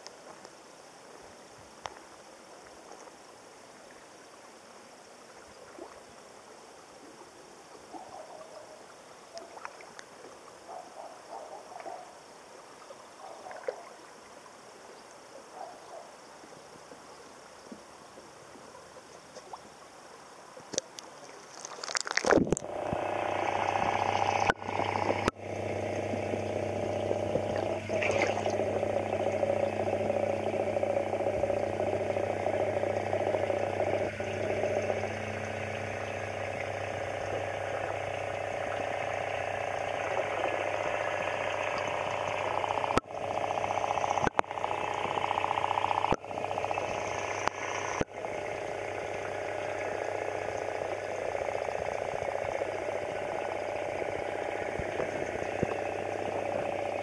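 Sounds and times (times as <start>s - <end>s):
faint outdoor pond ambience: 0.0s - 57.0s
muffled underwater drone: 7.1s - 12.1s, 12.8s - 14.0s, 21.9s - 57.0s
camera plunging into water: 21.4s - 23.1s, 27.3s - 28.6s.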